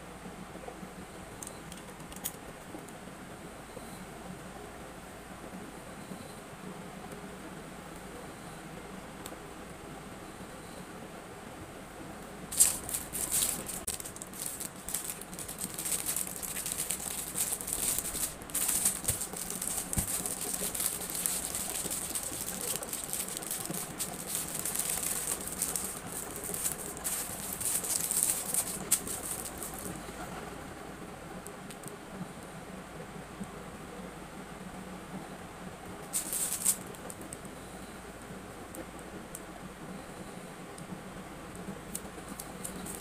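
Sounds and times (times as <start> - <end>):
packaging crinkling: 12.5 - 30.0, 36.0 - 37.2, 41.9 - 43.0.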